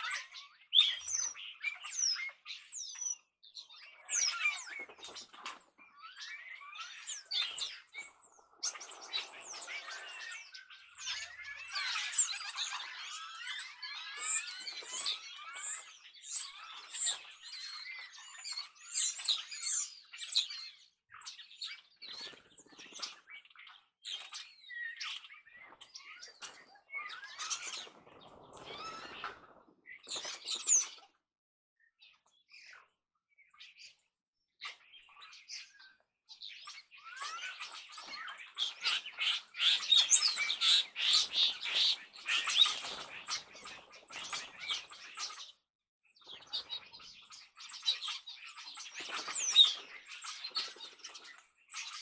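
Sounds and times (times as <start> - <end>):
starlings chattering: 0.0 - 31.0, 34.8 - 45.5
bird wingbeats: 27.2 - 30.6.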